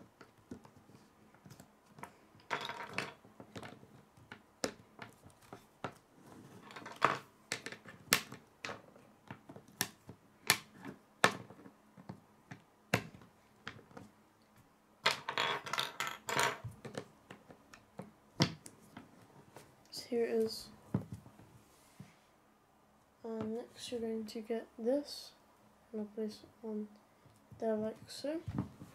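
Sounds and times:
pieces knocking on wooden table: 2.4 - 5.2, 6.6 - 9.4, 15.0 - 18.6.

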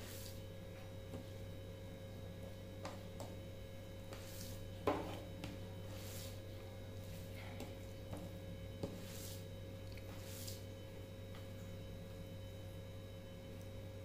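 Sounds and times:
steady low hum: 0.0 - 14.0
soft chewing: 9.8 - 10.6.

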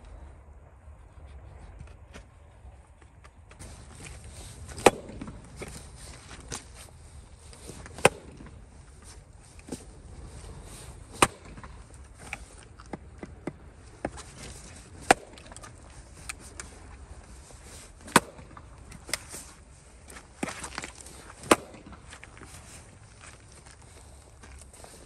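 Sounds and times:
hatchet chopping log: 3.6 - 5.7, 7.6 - 8.6, 11.1 - 15.8, 18.0 - 19.2, 20.4 - 22.1.

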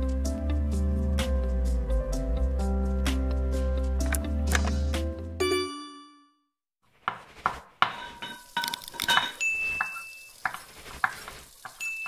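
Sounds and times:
dishes and utensils clattering: 7.8 - 12.0
bright ding: 9.2 - 10.3.

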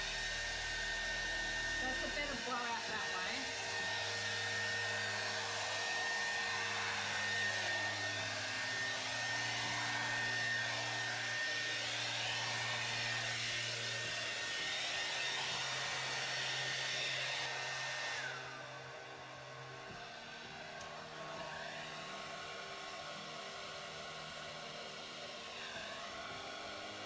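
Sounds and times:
motor spinning down: 0.0 - 18.6
hairdryer running: 0.0 - 27.0.

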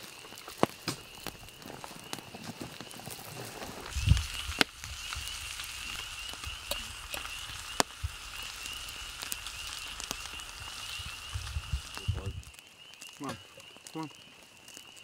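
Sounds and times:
high pulsing trill of night creatures: 4.0 - 14.9.

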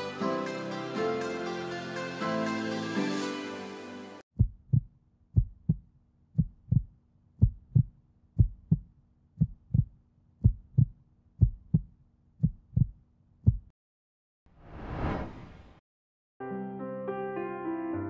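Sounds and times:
heartbeat thumps: 4.4 - 13.7
rising whoosh: 14.6 - 15.8.

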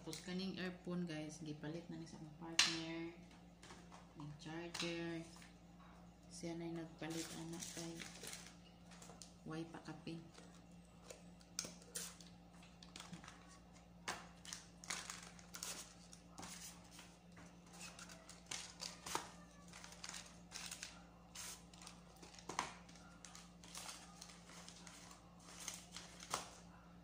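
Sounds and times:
steady low hum: 0.0 - 27.0
cardboard and paper rustling: 7.1 - 9.2, 14.3 - 26.6.

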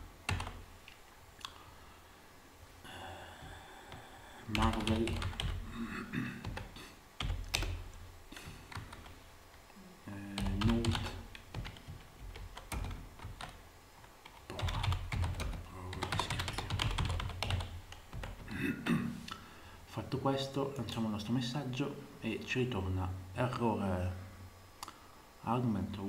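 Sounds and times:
keyboard typing: 0.3 - 0.6, 3.9 - 5.6, 6.4 - 9.2, 10.3 - 13.6, 14.2 - 18.5.

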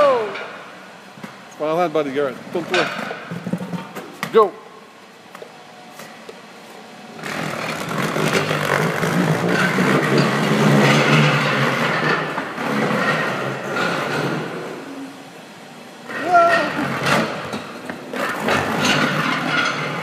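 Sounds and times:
hoverboard wheels and motors whirring: 7.1 - 15.2.

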